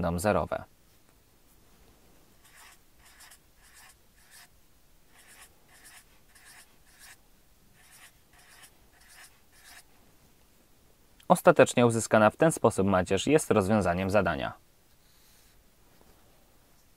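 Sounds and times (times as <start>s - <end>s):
marker scratching on paper: 2.4s - 4.5s, 5.1s - 7.2s, 7.8s - 9.9s.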